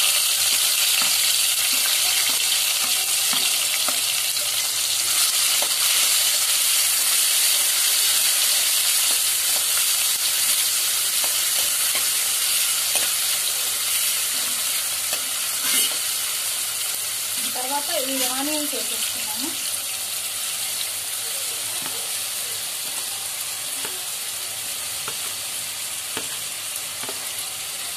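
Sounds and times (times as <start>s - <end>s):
spoon stirring in pan: 0.0s - 4.7s, 8.2s - 16.1s
vegetables sizzling in oil: 0.0s - 27.9s.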